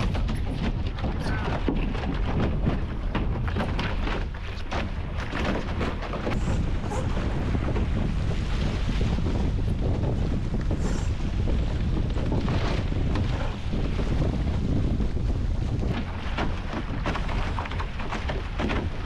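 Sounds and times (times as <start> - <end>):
rigging clicks and knocks: 0.0 - 6.7, 11.8 - 19.0
water splashing against hulls: 0.0 - 19.0
wind buffeting microphone: 0.0 - 19.0.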